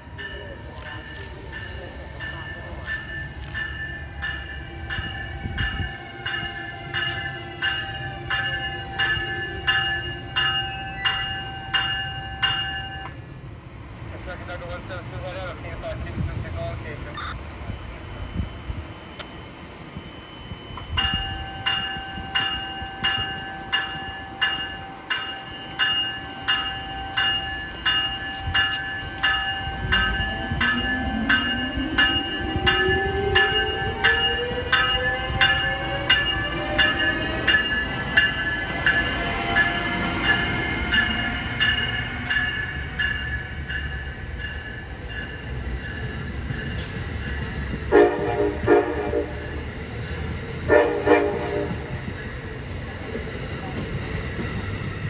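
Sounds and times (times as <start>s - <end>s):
locomotive bell ringing: 0.0s - 13.3s, 20.0s - 48.2s
train horn: 47.9s - 49.6s, 50.6s - 52.0s.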